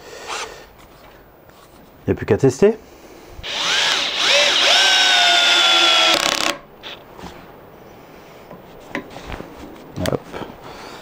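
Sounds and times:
cordless drill motor whine: 3.4 - 7.0.

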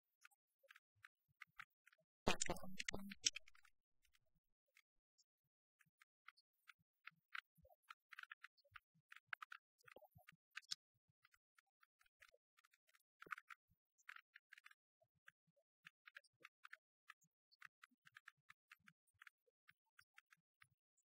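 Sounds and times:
faint clicks and crackles: 0.0 - 21.0.

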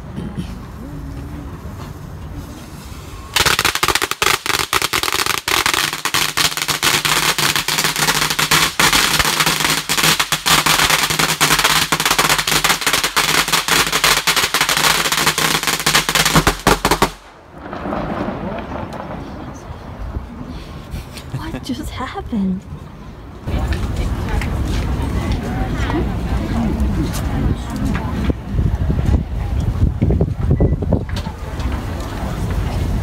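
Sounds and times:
firecrackers crackling: 1.6 - 20.1.

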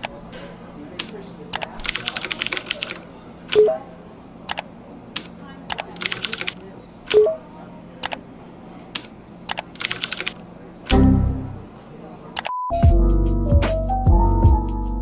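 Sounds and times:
keyboard typing: 1.0 - 3.8, 4.5 - 7.4, 9.0 - 11.1.

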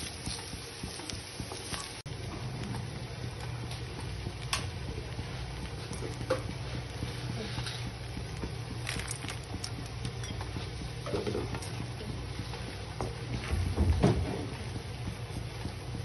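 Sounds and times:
spatula stirring spices in pan: 0.0 - 2.1.

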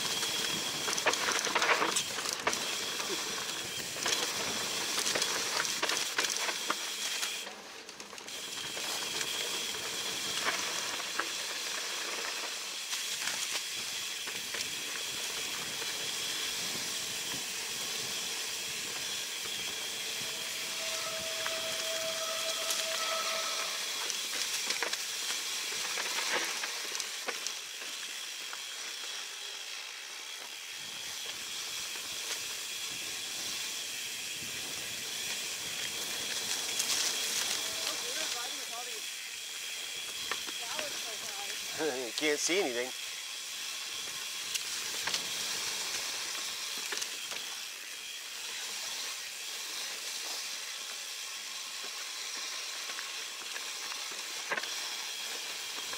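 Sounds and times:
bike clicks and rattles: 0.0 - 20.8, 23.7 - 55.9
tyres hissing on dirt: 0.0 - 55.9
short steady whine: 18.4 - 24.8.

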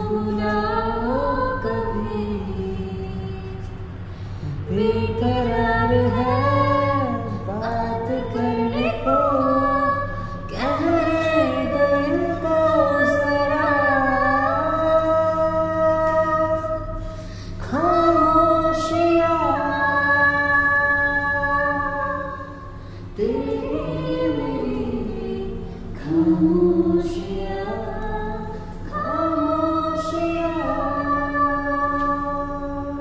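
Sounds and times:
woman singing unaccompanied: 0.0 - 4.0, 4.6 - 33.0.

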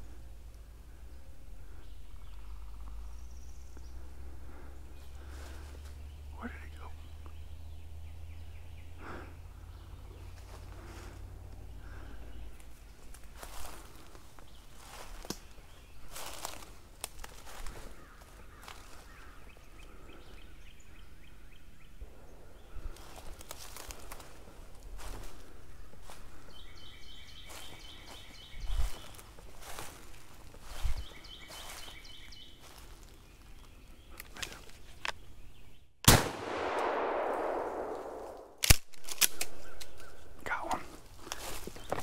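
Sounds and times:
footsteps crunching dry leaves: 12.9 - 19.4, 22.9 - 33.8, 39.5 - 42.0
gunshots with echo: 36.1 - 38.6.

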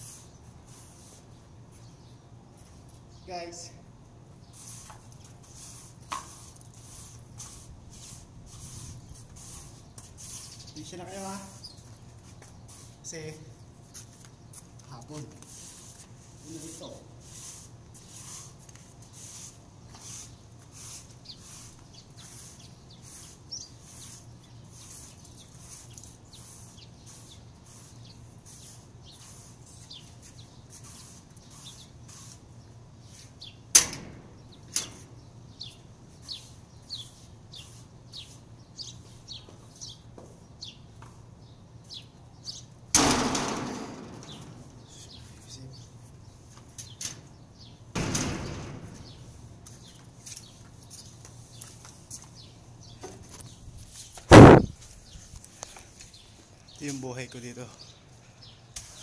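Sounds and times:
broom sweeping tiled floor: 0.0 - 1.9, 4.5 - 13.2, 13.9 - 33.5, 36.1 - 39.8, 58.7 - 59.0
metal door rattling open: 33.8 - 35.1, 42.9 - 44.9, 47.9 - 49.3
sharp knock: 54.3 - 54.7.

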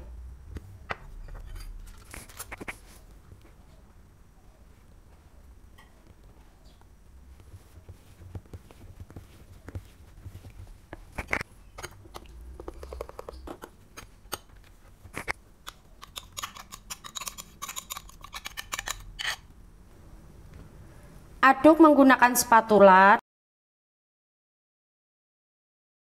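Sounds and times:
spoon scraping ceramic bowl: 16.0 - 19.5.

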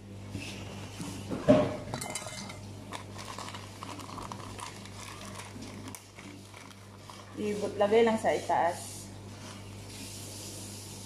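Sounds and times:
steady low hum: 0.0 - 11.0
kitchenware clinking and knocking: 1.4 - 2.6.

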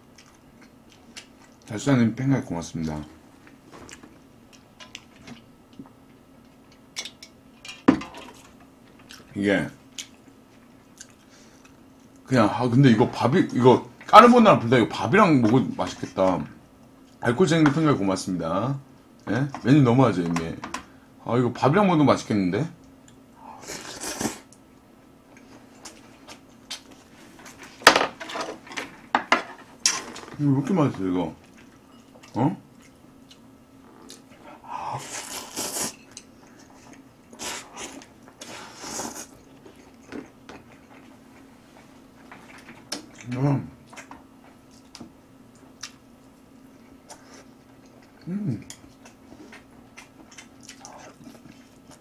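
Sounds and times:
quiet chewing: 0.0 - 1.7, 8.4 - 9.3, 9.9 - 12.3, 31.4 - 52.0
faint steady hum: 0.0 - 52.0.

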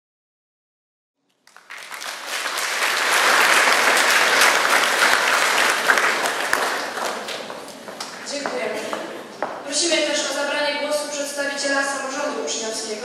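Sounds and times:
audience applauding: 1.4 - 8.3.

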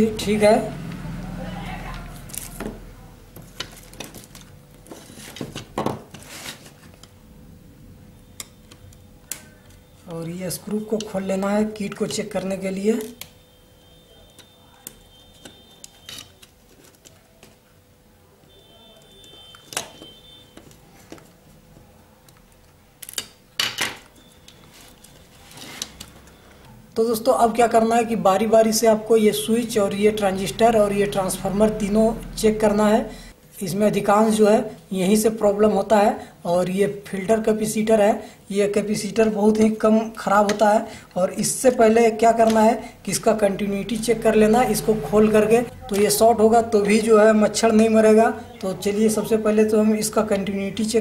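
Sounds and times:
plastic and board scraping: 3.4 - 7.0.

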